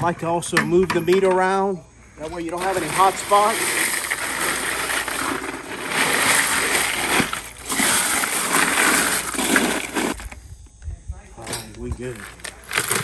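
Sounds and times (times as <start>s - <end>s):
ice crunching and sloshing in cooler: 2.2s - 10.4s, 12.0s - 13.0s.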